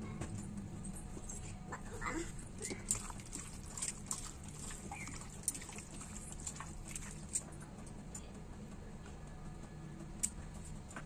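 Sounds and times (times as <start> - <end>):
hand kneading wet meat: 2.6 - 7.5.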